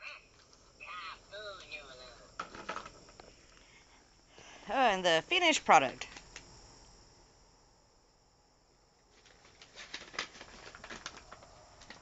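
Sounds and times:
paper bag rustling: 9.0 - 12.0
small clicks and crackles: 9.1 - 12.0.

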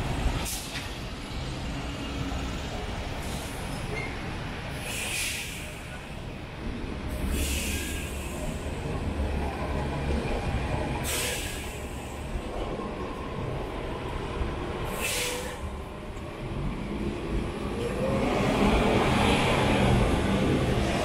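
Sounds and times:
heavy vehicle engines rumbling: 0.0 - 21.0
air brake hiss: 0.4 - 0.8, 4.7 - 6.0, 7.2 - 8.7, 11.0 - 12.2, 14.9 - 15.7.

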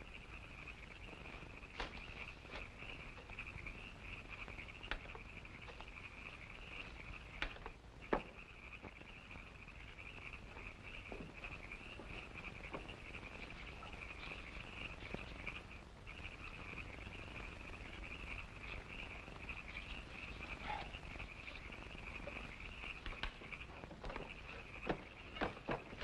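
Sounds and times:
high-pitched trilling night chorus: 0.0 - 26.0
faint clicks: 18.3 - 26.0.

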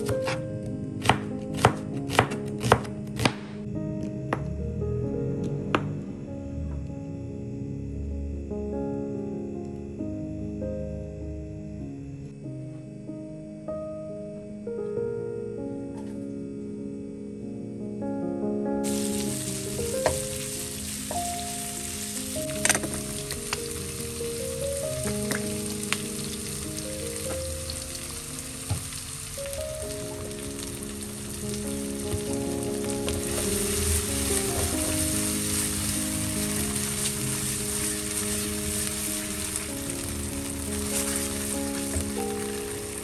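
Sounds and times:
soft background music: 0.0 - 43.0
onions sizzling in a frying pan: 18.8 - 43.0.

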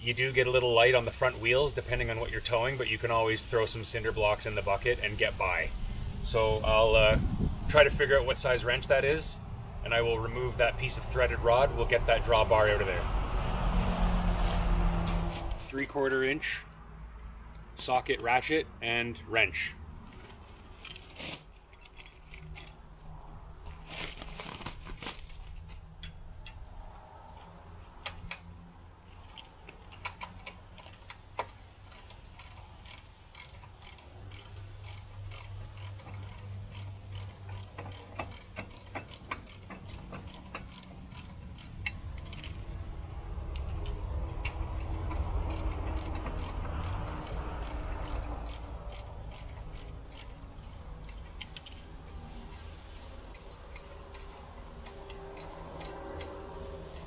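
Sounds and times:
socket ratchet clicking: 29.3 - 42.8, 43.4 - 57.0.

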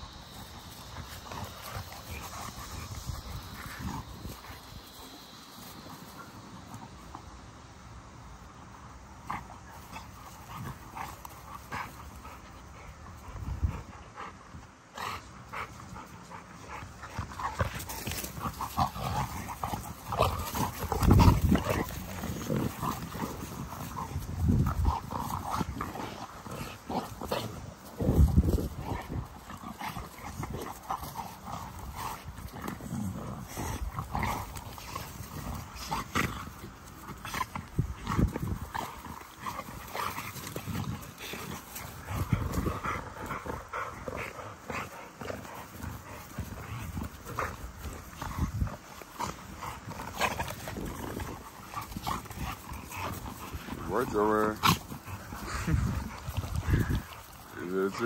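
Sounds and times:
dogs growling and play-fighting: 0.0 - 58.0
dogs scuffling: 16.5 - 58.0.

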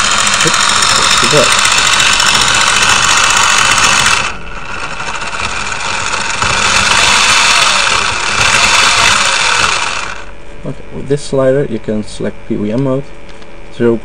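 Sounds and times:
toy car motor whirring: 0.0 - 10.3.

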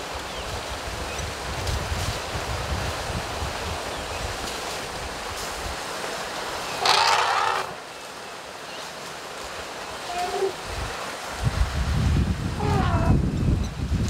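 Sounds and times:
wind buffeting microphone: 0.0 - 5.9, 10.1 - 14.0
outdoor hiss: 0.0 - 14.0.

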